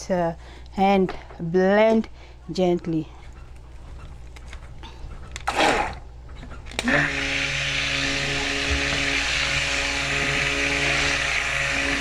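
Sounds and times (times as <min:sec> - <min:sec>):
stick blender running in liquid: 0:06.8 - 0:12.0.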